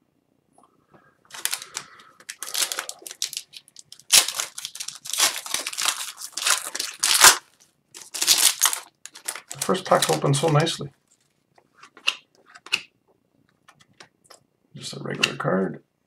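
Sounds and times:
wrapper crinkling and tearing: 1.3 - 11.4.

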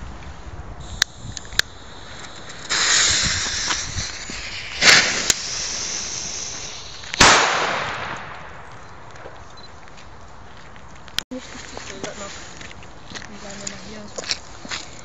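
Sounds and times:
firecracker fuse hissing: 0.3 - 8.5
firecracker bang: 0.8 - 8.7
torch lighter click: 0.9 - 3.8.

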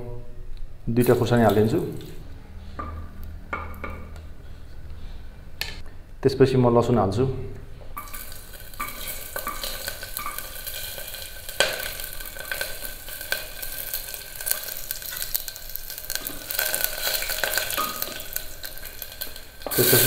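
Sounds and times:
food sizzling in hot ghee: 8.0 - 20.0
spoon scraping pan: 8.0 - 20.0.

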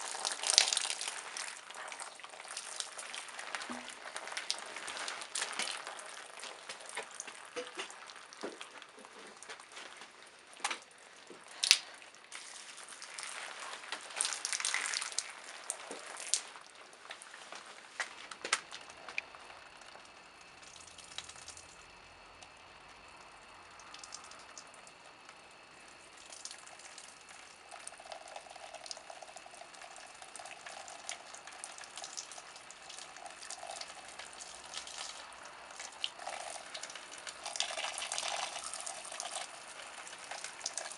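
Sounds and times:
liquid trickling and dripping: 0.0 - 40.9
wine splashing on wet tissue: 11.5 - 17.4.

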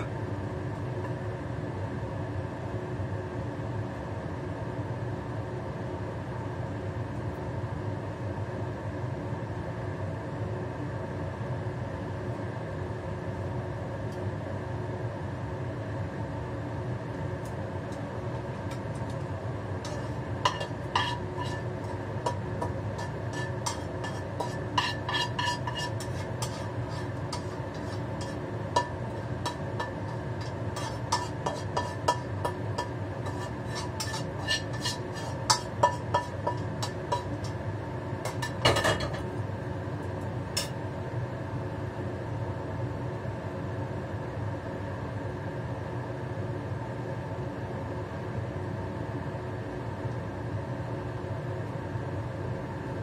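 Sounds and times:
utensil scraping frying pan: 0.0 - 0.2, 18.3 - 39.4, 40.5 - 40.8
range hood fan hum: 0.0 - 53.0.

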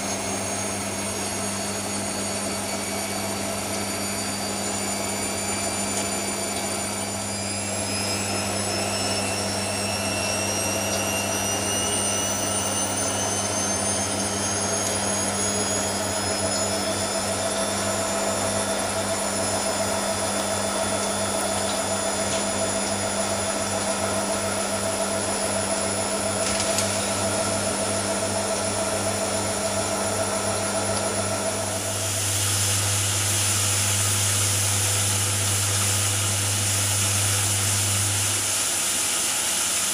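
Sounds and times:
motor whine rising in pitch: 0.0 - 39.9
washing machine pump hum: 0.0 - 39.9
water hissing in: 31.8 - 39.9.

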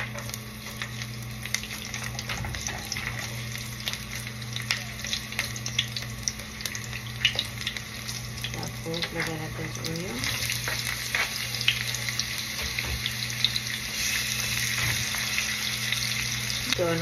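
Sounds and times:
garlic sizzling in oil: 0.0 - 17.0.

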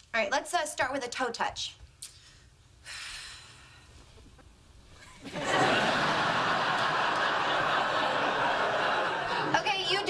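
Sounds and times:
audience laughing: 5.2 - 10.0.

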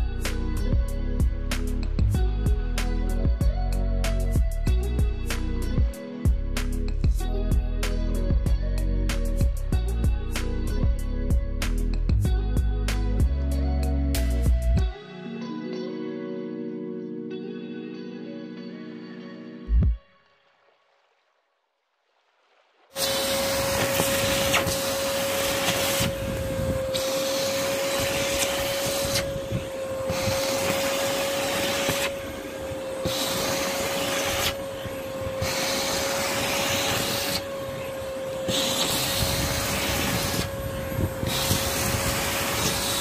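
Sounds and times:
vacuum cleaner running: 23.0 - 43.0.

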